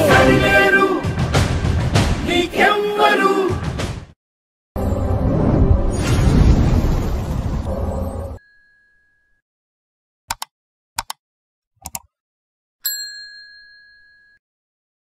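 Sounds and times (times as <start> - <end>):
mouse clicks: 10.3 - 11.2, 11.8 - 12.1
bright ding: 12.9 - 14.4.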